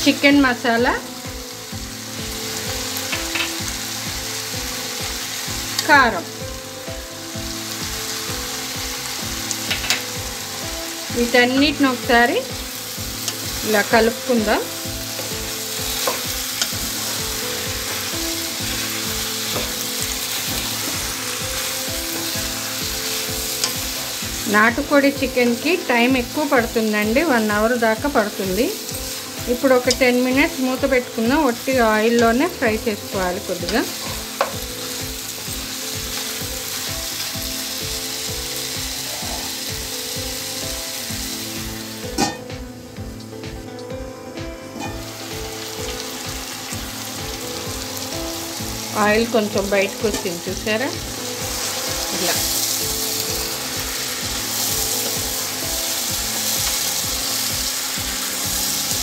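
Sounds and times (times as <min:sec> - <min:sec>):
chicken sizzling in oil: 0:00.0 - 0:59.0
glass lid clanking: 0:42.1 - 0:42.5.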